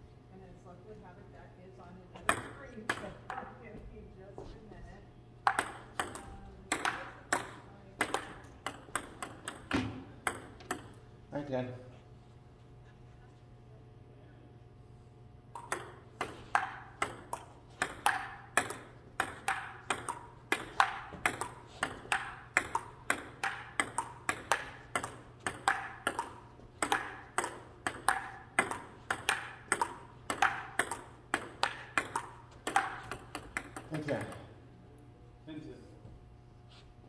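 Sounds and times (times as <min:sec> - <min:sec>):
table tennis ball clicking: 0:02.3 - 0:03.5, 0:05.4 - 0:11.0, 0:15.5 - 0:34.4.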